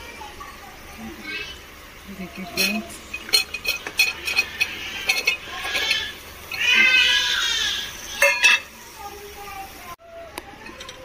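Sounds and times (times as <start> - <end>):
vegetables clinking into metal pot: 2.4 - 6.8, 8.2 - 8.7.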